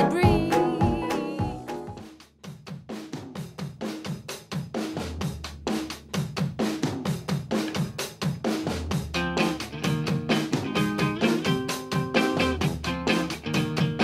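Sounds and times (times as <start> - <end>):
background song: 0.0 - 2.0
drum-kit beat: 0.0 - 14.0.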